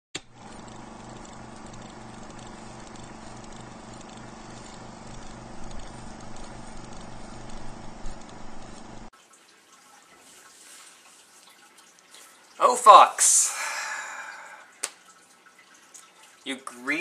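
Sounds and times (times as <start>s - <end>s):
film projector clatter: 0.2s - 9.1s
even hiss: 12.6s - 14.9s.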